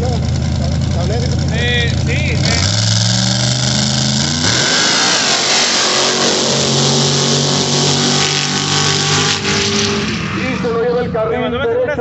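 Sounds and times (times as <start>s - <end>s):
race vehicle engine revving high: 0.0s - 11.4s
strong rushing noise: 2.5s - 10.9s.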